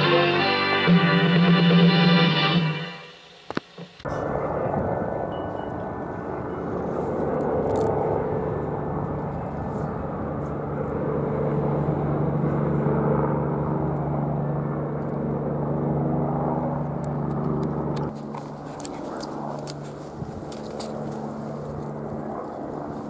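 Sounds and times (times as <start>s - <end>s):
helicopter rotor and engine: 4.0s - 23.0s.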